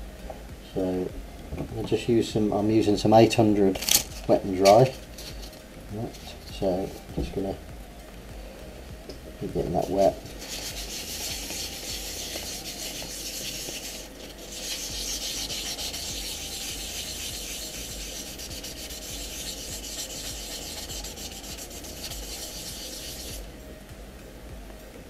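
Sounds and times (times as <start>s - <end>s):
sandpaper rubbing on plastic: 9.8s - 23.5s.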